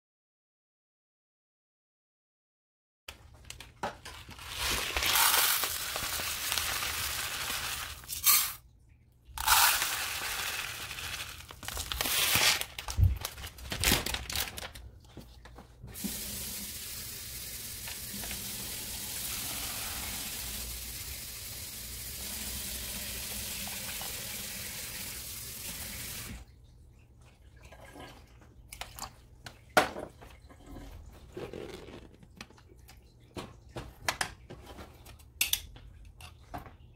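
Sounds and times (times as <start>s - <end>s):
water running into a saucepan: 4.6s - 8.6s, 9.4s - 12.0s, 15.9s - 26.5s.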